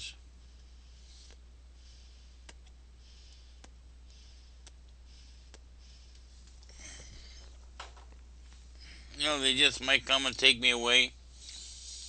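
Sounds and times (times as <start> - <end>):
soft hissing puffs: 0.4 - 7.7, 11.2 - 12.0.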